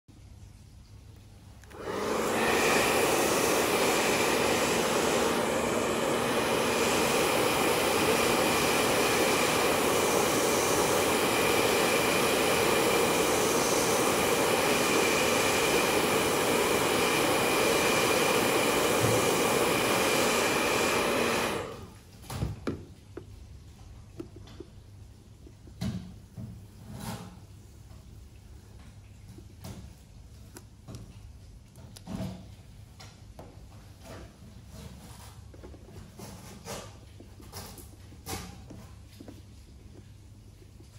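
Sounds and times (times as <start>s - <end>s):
hair dryer running: 1.6s - 22.0s.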